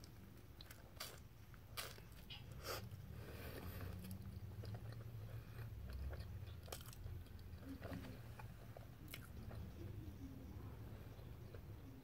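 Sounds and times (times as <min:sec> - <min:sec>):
chewing with wet mouth clicks: 0:03.8 - 0:09.8.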